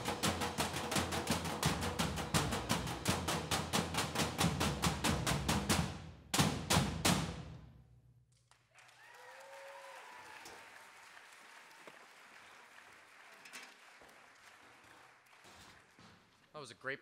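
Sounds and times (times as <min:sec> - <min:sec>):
drumsticks striking metal trash cans: 0:00.0 - 0:07.5
audience applauding: 0:08.6 - 0:16.0
audience cheering: 0:08.7 - 0:15.5.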